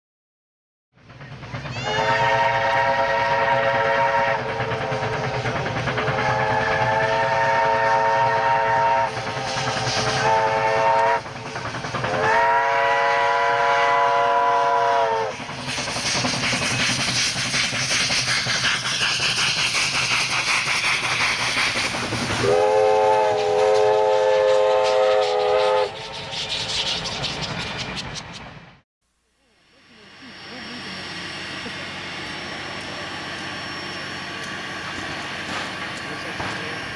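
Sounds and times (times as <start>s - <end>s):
train rhythmic clatter: 1.0s - 28.8s, 29.8s - 36.9s
steam locomotive whistle: 1.7s - 11.3s, 12.0s - 15.4s, 22.4s - 26.6s.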